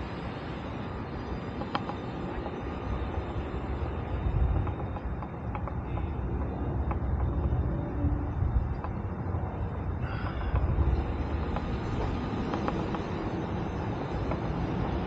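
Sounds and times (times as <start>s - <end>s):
low uneven rumble: 0.0s - 15.0s
faint ticks: 3.7s - 15.0s.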